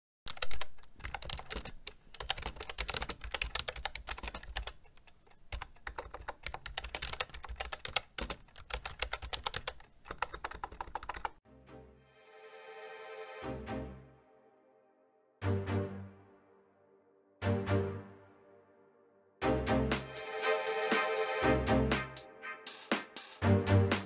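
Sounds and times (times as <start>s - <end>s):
rapid keyboard typing: 0.3s - 11.4s
sustained musical chord: 11.5s - 22.8s.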